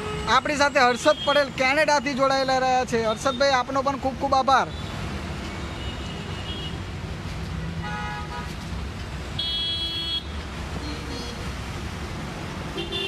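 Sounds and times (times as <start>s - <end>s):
traffic rumble on flooded street: 0.0s - 13.0s
car horn honking: 9.4s - 10.3s, 12.8s - 13.0s.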